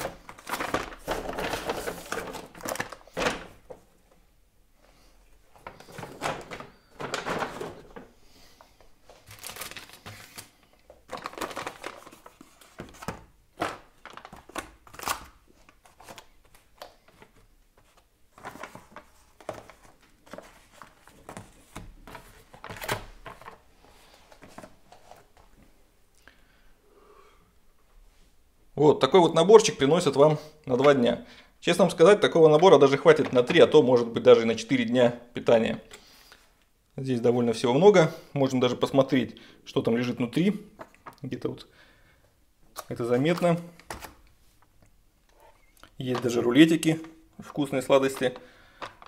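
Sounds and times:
packaging rustling and crinkling: 0:00.0 - 0:03.8, 0:05.5 - 0:25.5.

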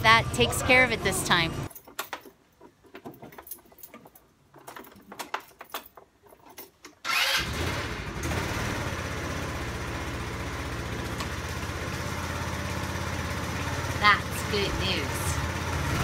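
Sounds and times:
scooter engine starting and idling: 0:07.0 - 0:16.0.

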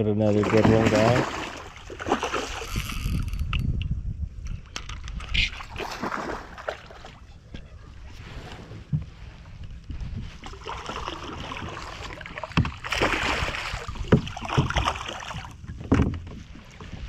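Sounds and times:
water sloshing: 0:00.2 - 0:03.5, 0:05.0 - 0:17.0
fish splashing and thrashing: 0:00.3 - 0:03.5, 0:04.6 - 0:07.7, 0:10.1 - 0:17.0.

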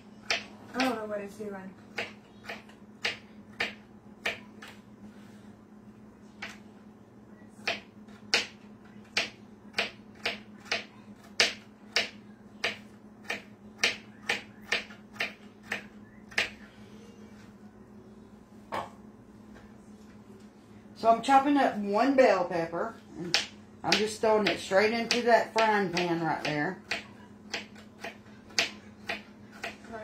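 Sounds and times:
knife chopping on plastic board: 0:00.2 - 0:01.0, 0:01.9 - 0:04.8, 0:07.6 - 0:16.6, 0:23.2 - 0:30.0.

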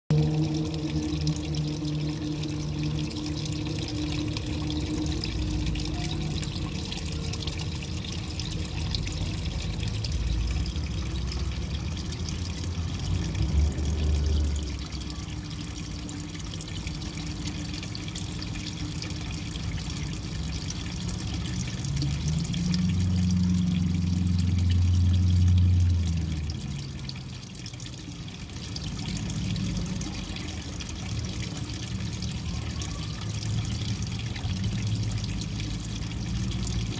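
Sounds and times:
low hum: 0:00.1 - 0:27.1
water trickling into pond: 0:00.1 - 0:36.9.

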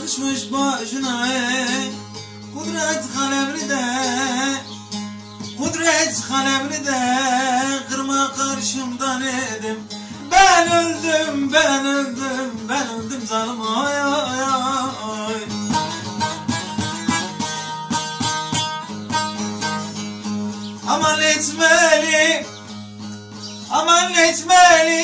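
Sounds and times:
man singing: 0:00.0 - 0:04.9, 0:05.5 - 0:16.3, 0:20.8 - 0:22.6, 0:23.6 - 0:25.0
plucked lutes playing: 0:00.0 - 0:25.0.

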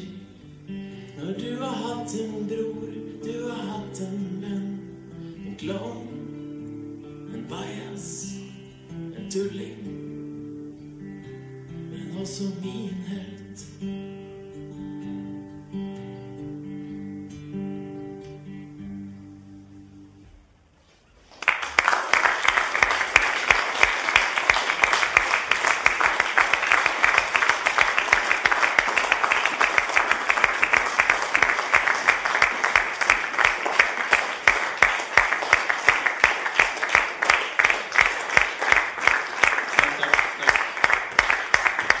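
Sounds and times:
audience applauding: 0:21.3 - 0:42.0.

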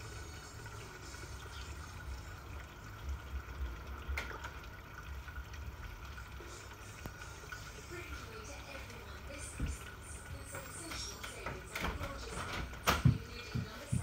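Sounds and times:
pond water trickling and lapping: 0:00.0 - 0:10.1.

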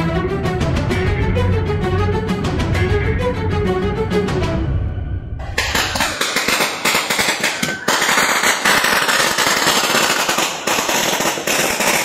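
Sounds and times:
firecrackers banging: 0:05.4 - 0:12.0.

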